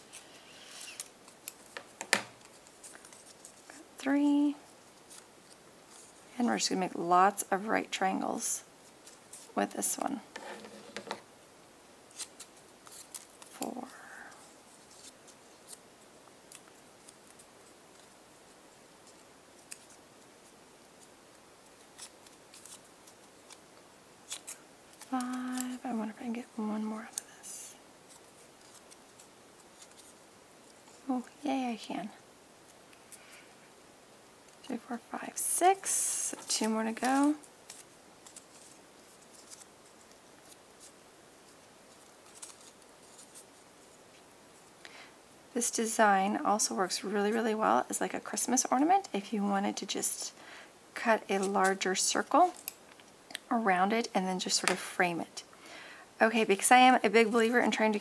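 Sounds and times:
paper being folded: 0:24.2 - 0:31.1, 0:35.8 - 0:44.7.

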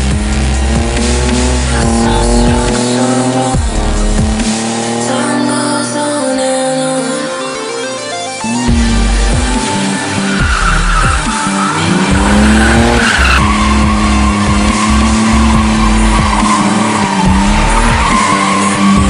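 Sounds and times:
car engine revving: 0:00.0 - 0:19.0
electronic music with heavy bass: 0:00.0 - 0:19.0
tyres squealing: 0:08.2 - 0:19.0.

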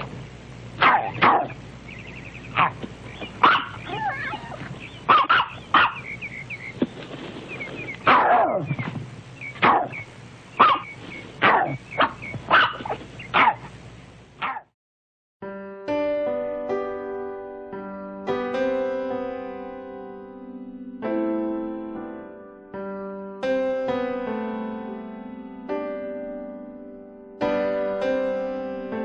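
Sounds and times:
dog barking sharply: 0:00.8 - 0:01.6, 0:02.5 - 0:02.8, 0:03.4 - 0:06.0, 0:08.0 - 0:08.8, 0:09.6 - 0:10.0, 0:10.6 - 0:13.7, 0:14.4 - 0:14.7.

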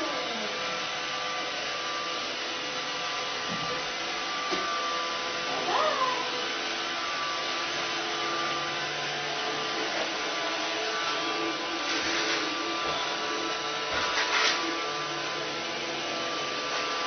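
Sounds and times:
robot vacuum whirring: 0:00.0 - 0:17.0
cat meowing: 0:05.6 - 0:06.4.

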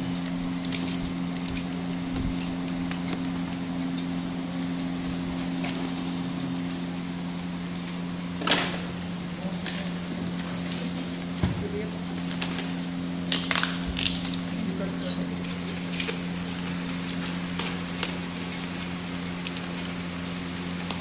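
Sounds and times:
plastic tearing crackle: 0:00.0 - 0:06.1, 0:10.4 - 0:21.0
steady low hum: 0:00.0 - 0:21.0.

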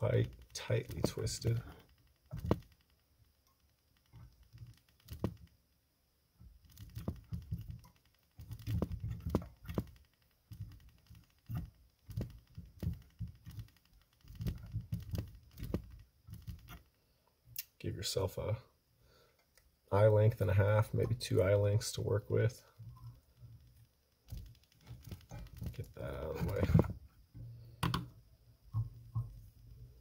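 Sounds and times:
hands handling noises: 0:00.0 - 0:02.7, 0:20.9 - 0:27.0.

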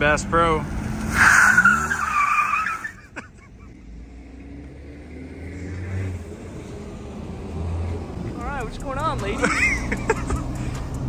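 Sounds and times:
tyres squealing: 0:01.1 - 0:03.4.

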